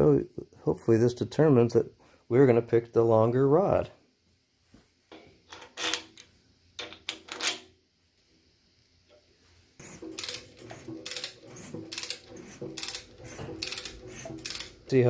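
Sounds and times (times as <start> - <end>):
ratchet wrench clicking: 9.8 - 14.9.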